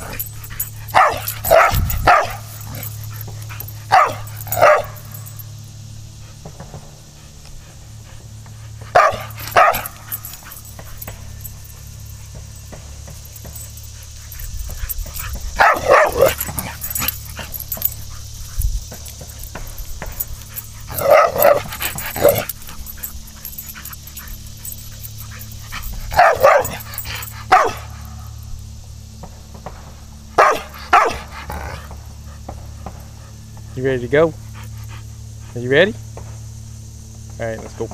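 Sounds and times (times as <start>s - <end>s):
dog barking: 0.0s - 5.4s, 8.9s - 28.3s, 30.4s - 32.0s.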